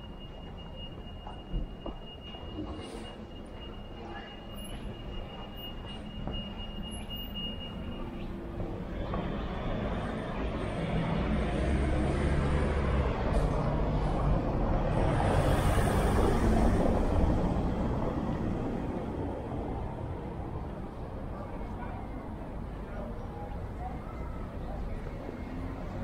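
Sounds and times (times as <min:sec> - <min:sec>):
vehicle driving past: 0:09.3 - 0:19.4.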